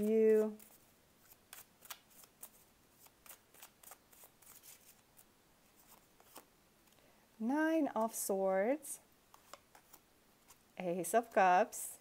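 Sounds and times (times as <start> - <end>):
cards being shuffled: 0.0 - 7.0, 9.3 - 10.6.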